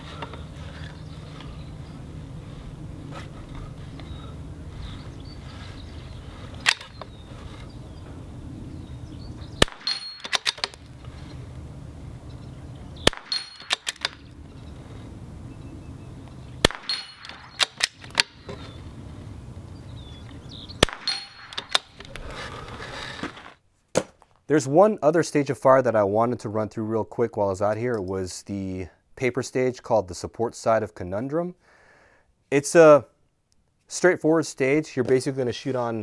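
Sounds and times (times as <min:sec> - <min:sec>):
rifle bolt clicking: 0:06.6 - 0:07.0, 0:09.6 - 0:10.8, 0:13.1 - 0:14.2
rifle shots: 0:09.6 - 0:10.9, 0:13.0 - 0:14.3, 0:16.6 - 0:18.5, 0:20.8 - 0:22.0.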